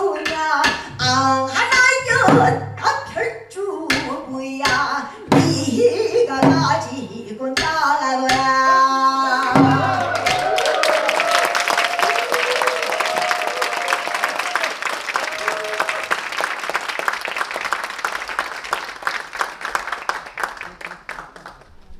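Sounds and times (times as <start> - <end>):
voices calling out: 8.5 - 11.1
audience applause: 9.3 - 21.8.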